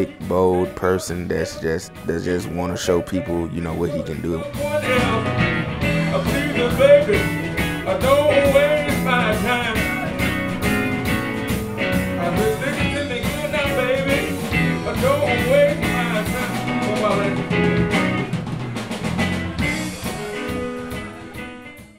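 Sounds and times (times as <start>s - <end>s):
electric guitar blues lead: 0.0s - 21.8s
drum kit: 3.2s - 21.9s.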